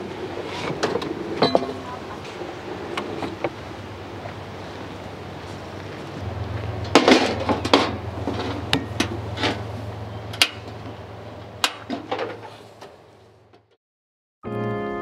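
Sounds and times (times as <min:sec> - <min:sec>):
steady low hum: 0:01.1 - 0:13.5
metal camp gear clanking: 0:06.3 - 0:13.7.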